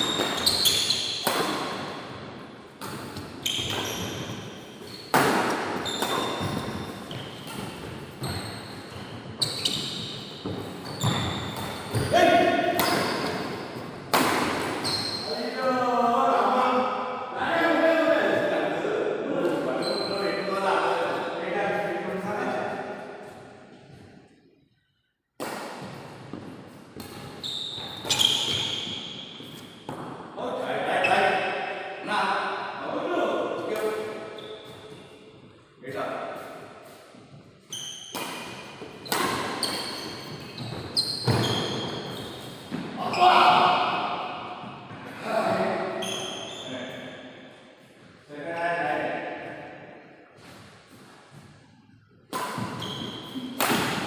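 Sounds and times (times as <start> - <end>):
high squeak: 0.0 - 1.2, 8.2 - 13.4, 14.8 - 15.5, 27.4 - 29.2, 39.0 - 43.4, 46.0 - 47.0, 52.7 - 53.6
rackets hitting shuttlecock: 0.0 - 2.2, 5.1 - 14.9, 25.4 - 28.7, 38.0 - 43.0, 52.3 - 54.0
shoes squeaking on court: 0.0 - 13.9, 14.6 - 15.6, 19.4 - 20.6, 25.8 - 30.1, 34.0 - 35.6, 36.3 - 43.3, 45.9 - 48.3, 52.3 - 53.7.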